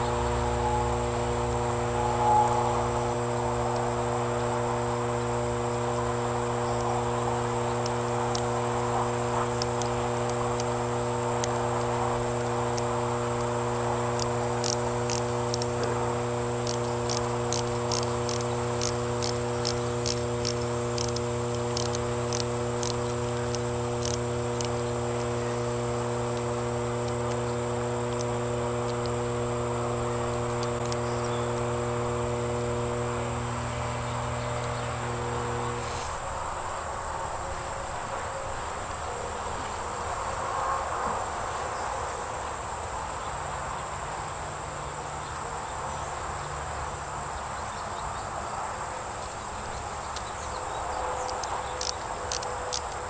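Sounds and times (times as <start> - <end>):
air pump humming: 0.0 - 43.0, 48.9 - 53.0
crickets chirping: 0.0 - 53.0
quick metallic clicks: 6.2 - 31.6, 49.7 - 53.0.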